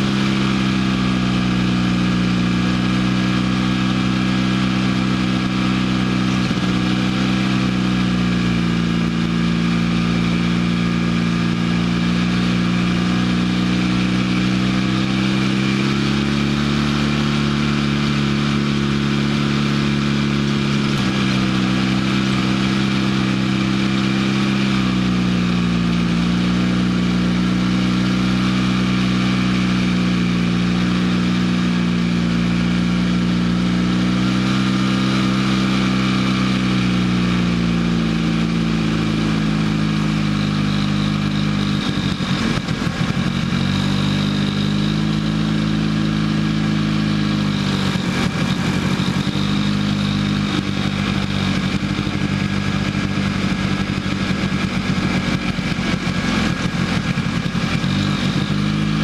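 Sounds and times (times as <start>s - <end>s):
vehicle engine running: 0.0s - 59.0s.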